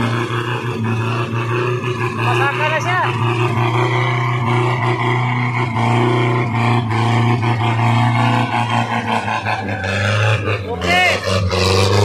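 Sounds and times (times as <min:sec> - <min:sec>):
truck engine running under load: 0:00.0 - 0:12.0.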